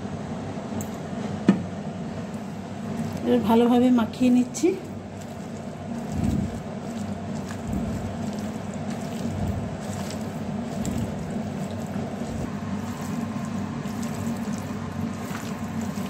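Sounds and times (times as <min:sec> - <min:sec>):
steady low hum: 0:00.0 - 0:16.0
hand squelching through fish pieces: 0:04.9 - 0:16.0.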